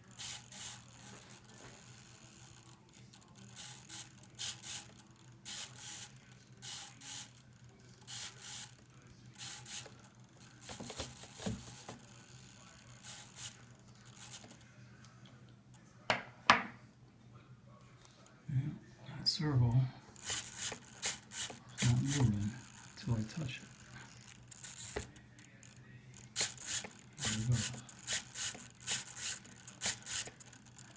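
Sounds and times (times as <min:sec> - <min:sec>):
servos buzzing: 0:00.0 - 0:14.6, 0:20.2 - 0:30.9.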